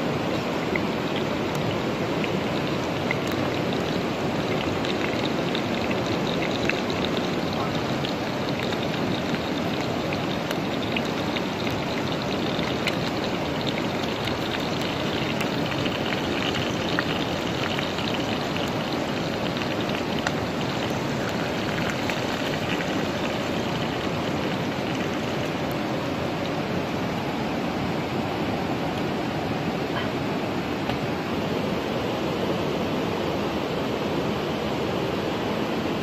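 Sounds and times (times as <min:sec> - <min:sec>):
liquid bubbling and sizzling in pot: 0:00.0 - 0:26.9.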